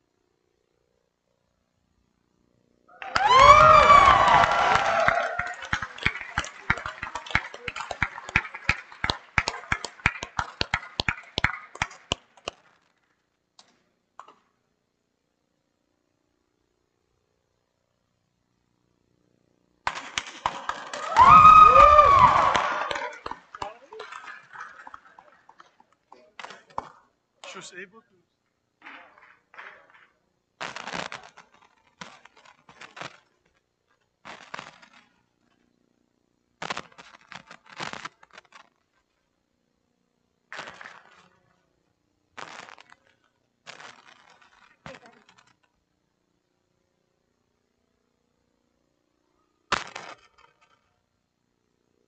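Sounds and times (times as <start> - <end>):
loud single claps: 3.0 - 12.7, 19.9 - 25.4
patter of clapping: 3.0 - 12.9, 19.9 - 27.1, 28.8 - 33.3, 40.5 - 41.4.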